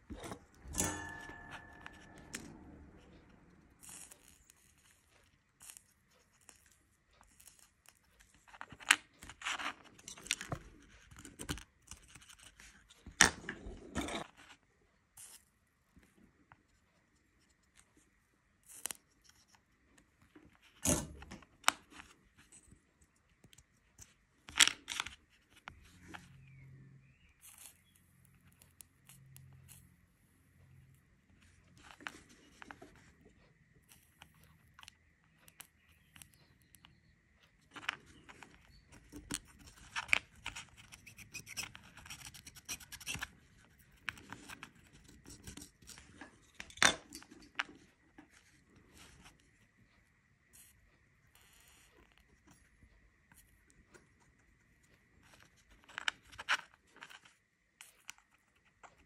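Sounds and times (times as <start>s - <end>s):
faint steady high tone: 0.1s - 4.8s.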